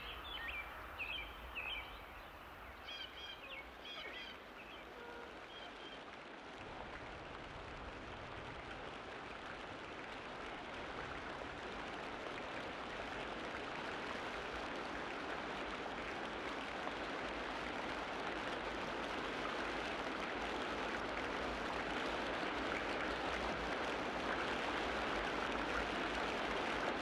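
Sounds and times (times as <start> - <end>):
bird chirps: 0.0 - 6.0.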